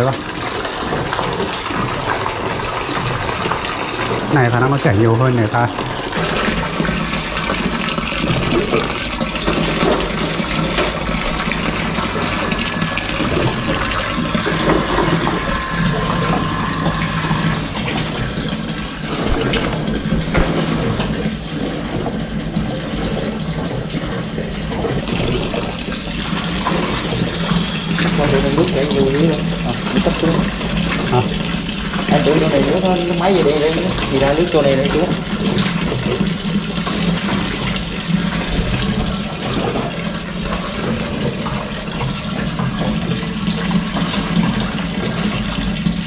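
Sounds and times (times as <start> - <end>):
water splashing into a plastic bucket: 0.0 - 46.0
steady low hum: 2.7 - 31.1.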